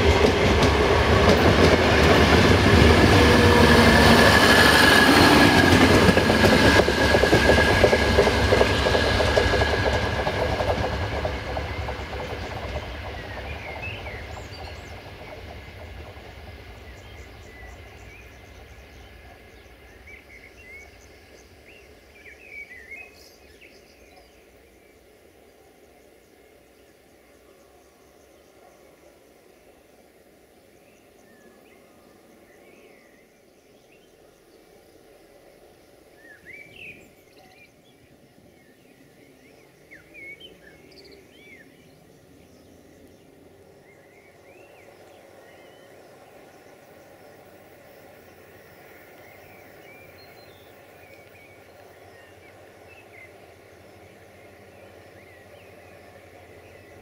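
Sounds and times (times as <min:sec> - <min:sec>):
birds chirping: 0:00.0 - 0:23.8
distant diesel railcar rumble: 0:00.0 - 0:25.5, 0:35.1 - 0:57.0.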